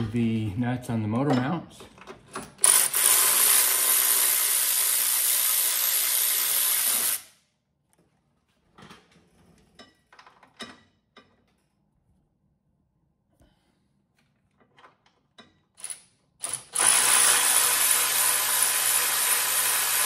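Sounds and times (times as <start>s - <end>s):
power tool spinning socket: 2.4s - 7.3s, 15.8s - 20.0s.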